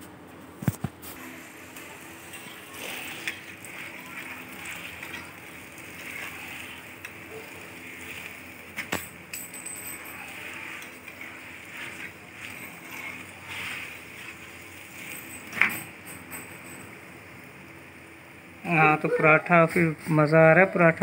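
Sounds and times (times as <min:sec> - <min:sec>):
flatbread hissing on griddle: 0:01.0 - 0:09.0, 0:10.1 - 0:15.6
tongs clinking on metal: 0:06.0 - 0:14.4, 0:15.0 - 0:17.0.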